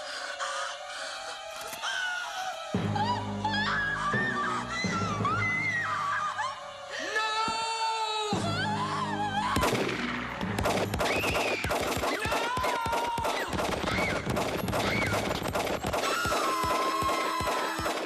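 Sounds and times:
rapid automatic gunfire: 10.6 - 18.0.

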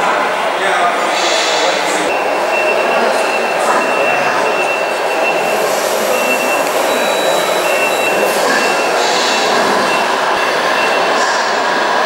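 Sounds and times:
busy indoor hall background noise: 0.0 - 12.0
high thin beep: 2.1 - 10.1.

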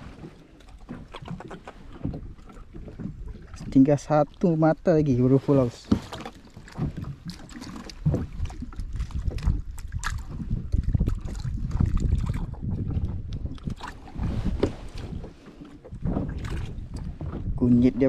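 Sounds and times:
water lapping against kayak: 0.0 - 18.0
wind rumbling on microphone: 6.6 - 18.0.

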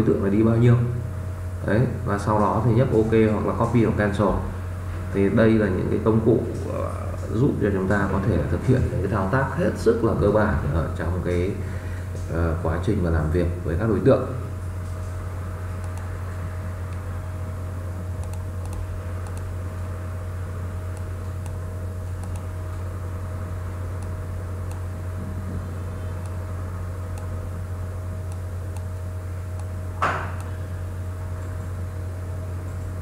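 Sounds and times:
low electrical hum: 0.0 - 33.0
mouse clicks: 15.8 - 16.1, 18.2 - 19.5, 22.2 - 22.5, 24.0 - 24.9, 28.3 - 28.9.

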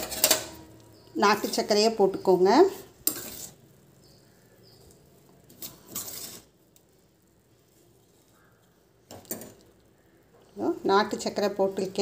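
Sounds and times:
powder rustle: 2.6 - 9.0.

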